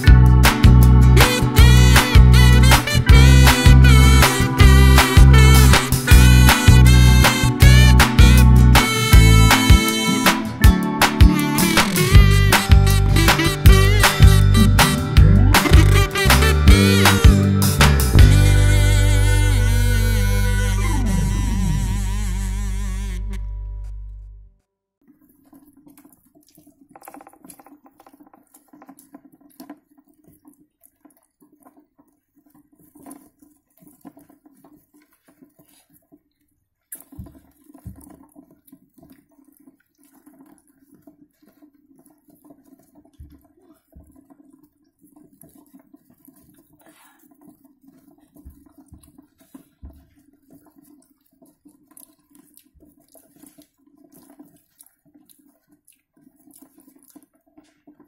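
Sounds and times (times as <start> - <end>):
soft low thumps: 12.2 - 16.1.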